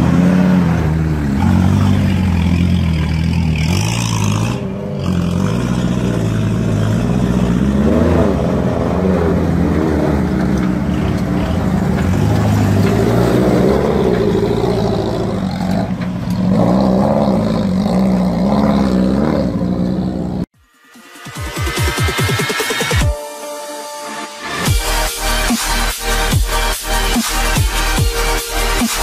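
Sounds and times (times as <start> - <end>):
off-road vehicle engine revving: 0.0 - 20.5.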